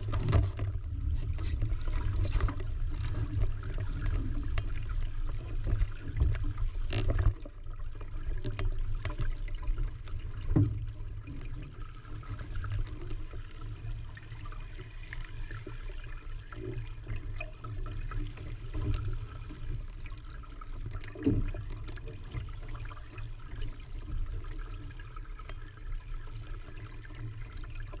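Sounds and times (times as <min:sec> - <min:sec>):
water slapping against boat hull: 0:00.0 - 0:07.6.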